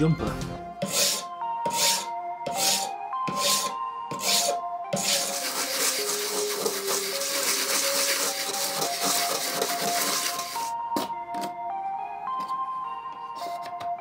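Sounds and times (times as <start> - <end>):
background music: 0.0 - 14.0
hand file rasping on plastic: 0.8 - 10.7
plastic rubbed on sandpaper: 4.2 - 10.7.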